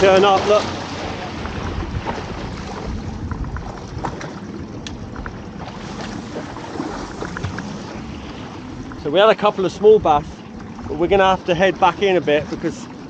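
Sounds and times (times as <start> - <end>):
water slaps: 0.0 - 9.0
wind on microphone: 0.0 - 12.6
water lapping against boat hull: 0.0 - 13.0.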